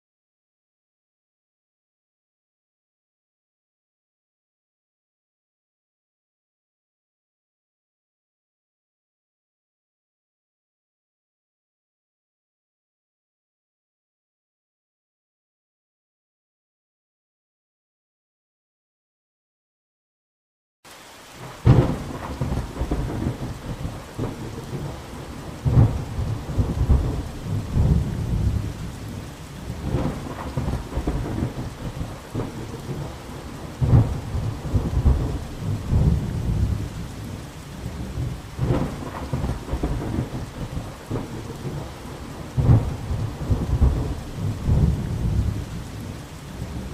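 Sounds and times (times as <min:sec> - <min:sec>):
rain falling: 0:20.9 - 0:46.9
thunder rumbling: 0:21.4 - 0:46.9.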